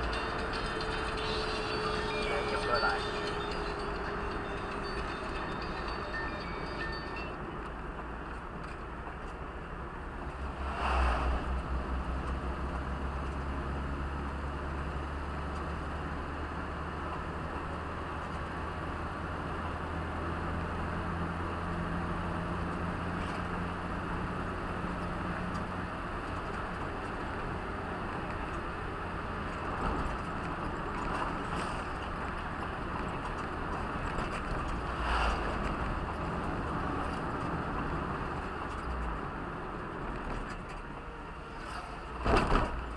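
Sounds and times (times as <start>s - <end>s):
engine hum inside vehicle: 0.0s - 42.9s
tyre rumble on road: 25.6s - 42.9s
knocks from road bumps: 42.2s - 42.9s.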